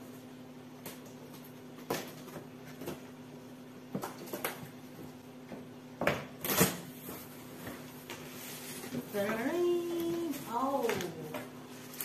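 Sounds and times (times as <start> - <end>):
faint steady hum: 0.0 - 12.0
cardboard rustling: 6.5 - 12.0
plastic crinkling: 8.0 - 12.0.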